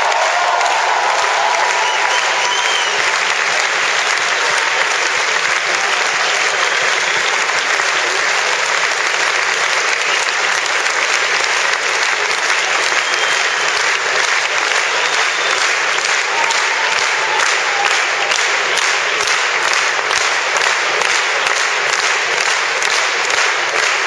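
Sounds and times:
crowd applauding: 0.0s - 24.0s.

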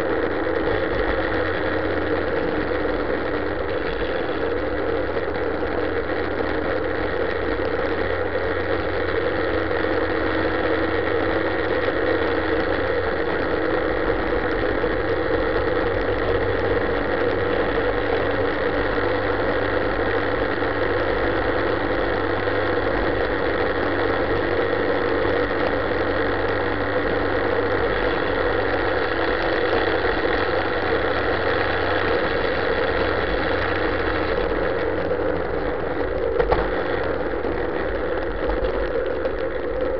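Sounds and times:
motorcycle engine cruising: 0.0s - 39.9s
road noise: 0.0s - 39.9s
wind noise: 32.1s - 39.9s.

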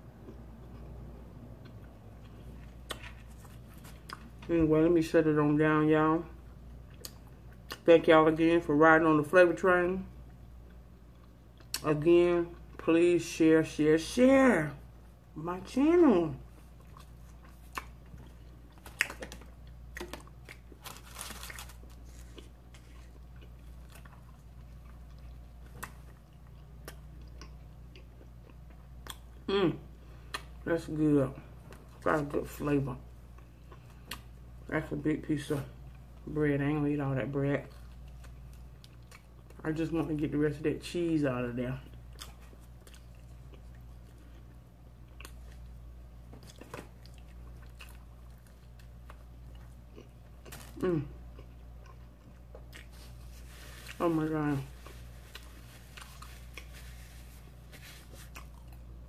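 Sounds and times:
low steady hum: 0.0s - 59.0s
person chewing food: 16.6s - 29.5s, 37.7s - 39.6s, 41.8s - 54.1s, 54.7s - 59.0s.

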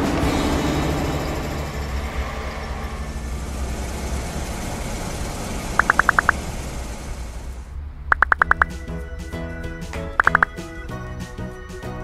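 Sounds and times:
truck engine rumbling: 0.0s - 11.2s
short high beeps: 5.8s - 6.4s, 8.1s - 8.7s, 10.2s - 10.5s.

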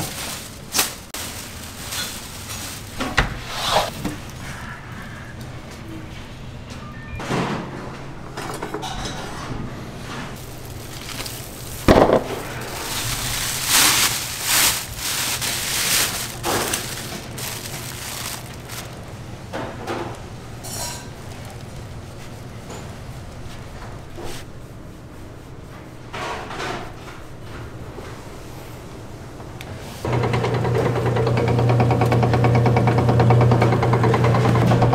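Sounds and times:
cling film crinkling: 0.0s - 3.2s, 10.4s - 19.2s, 21.2s - 22.4s.

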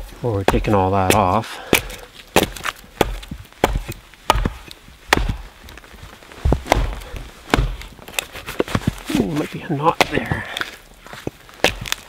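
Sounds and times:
hatchet chopping wood: 0.4s - 5.5s, 6.6s - 8.8s, 9.9s - 10.7s, 11.5s - 12.0s.

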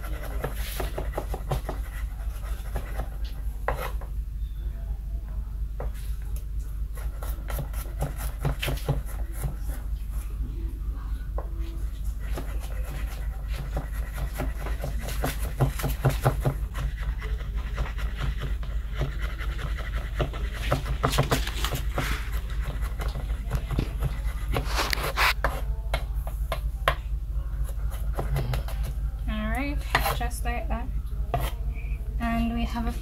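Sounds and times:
knife chopping on cutting board: 0.0s - 2.0s, 7.2s - 9.7s, 12.3s - 27.0s, 29.9s - 30.2s
steady low hum: 0.0s - 33.0s.

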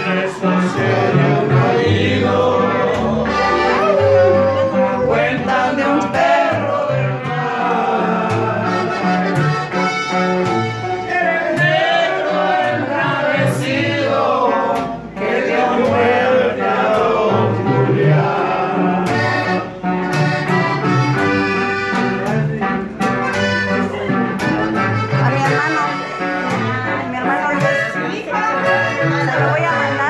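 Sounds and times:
man singing: 0.0s - 9.2s
strummed acoustic guitar: 0.0s - 30.0s
upright bass plucking: 0.0s - 30.0s.

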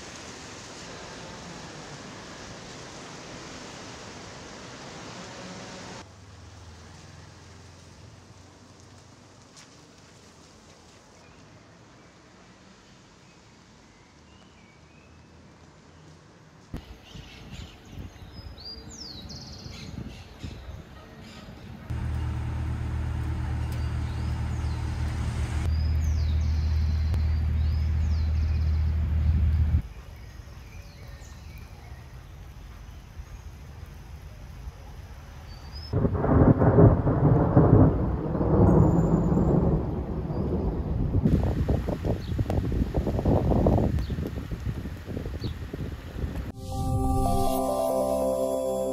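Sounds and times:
low uneven rumble: 21.9s - 29.8s
high chirps: 46.6s - 48.9s.

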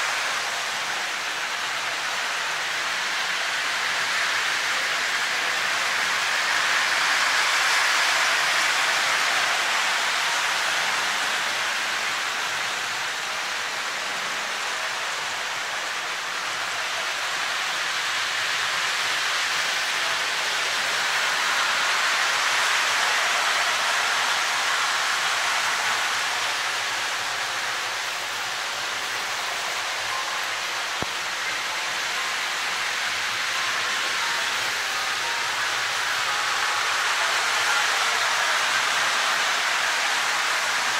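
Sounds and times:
steady rushing noise: 0.0s - 40.9s.

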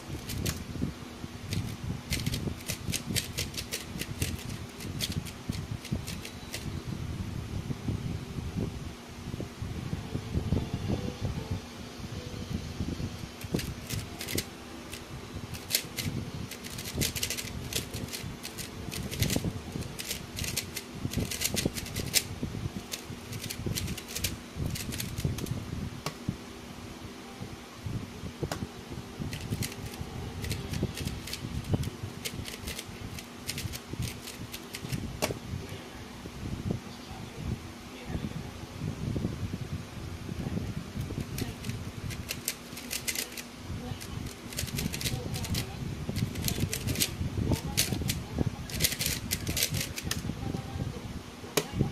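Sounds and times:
steady low hum: 0.0s - 51.9s
puzzle cube turning clicks: 0.2s - 0.6s, 1.5s - 6.7s, 13.4s - 22.3s, 22.9s - 25.5s, 29.3s - 35.0s, 41.2s - 43.4s, 44.0s - 45.6s, 46.2s - 50.2s.

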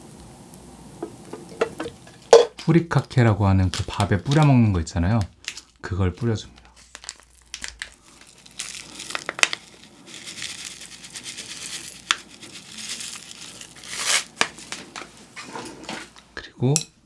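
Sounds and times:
dry flakes falling on rice: 0.0s - 15.4s
plastic sachet crinkling: 2.6s - 15.1s
sharp crinkly clicks: 3.6s - 9.7s.

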